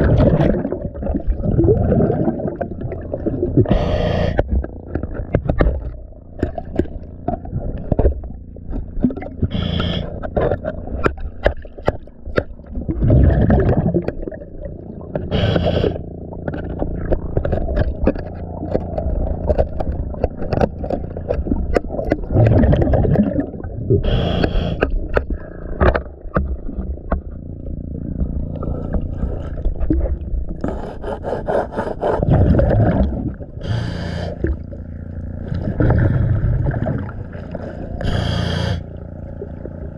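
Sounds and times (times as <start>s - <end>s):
scraper scratching underwater: 0.0s - 39.9s
scuba regulator breathing bubbles: 0.1s - 4.8s, 9.4s - 10.7s, 15.2s - 16.1s, 22.3s - 25.9s, 30.6s - 34.8s, 35.5s - 39.0s.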